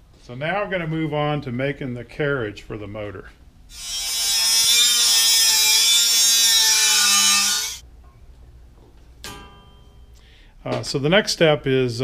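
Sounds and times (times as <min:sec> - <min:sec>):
angle grinder cutting steel: 0:03.7 - 0:07.8.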